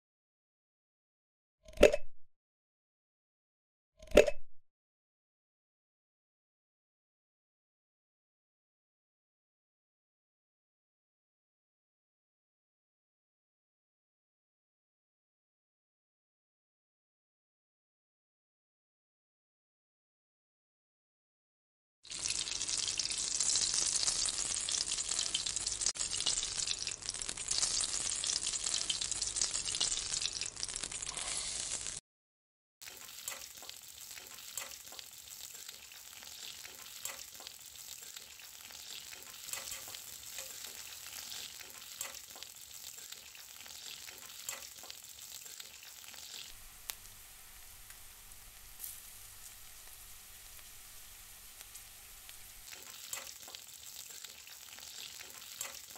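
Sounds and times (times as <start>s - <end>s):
mustard seeds popping in hot oil: 22.1s - 32.0s, 32.8s - 55.9s
vegetable pieces sizzling in oil: 22.1s - 32.0s, 32.8s - 55.9s.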